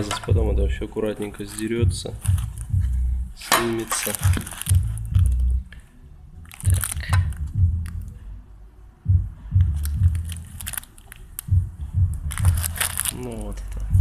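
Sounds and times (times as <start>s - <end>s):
plastic sheeting crinkling: 3.4s - 5.4s, 9.8s - 11.4s, 12.3s - 13.9s
microphone handling rumbles: 11.5s - 13.0s.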